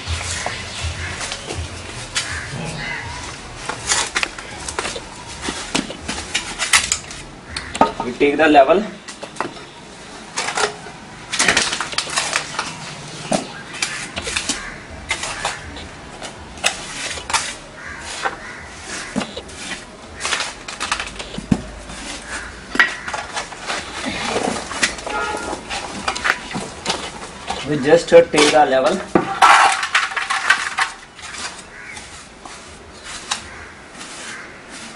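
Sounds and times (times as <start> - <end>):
trowel scraping mortar pan: 11.4 - 34.9.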